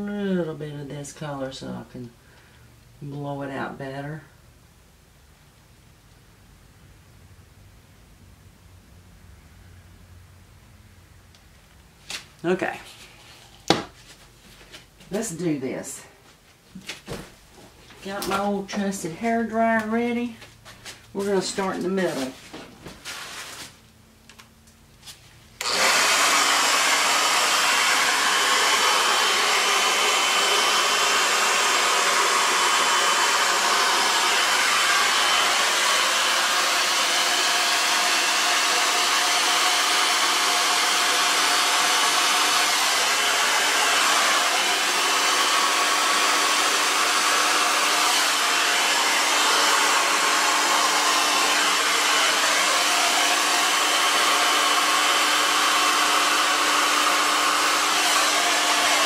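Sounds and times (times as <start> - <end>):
hair dryer blowing: 12.4 - 13.9, 18.0 - 20.4, 21.1 - 22.4, 25.6 - 59.0.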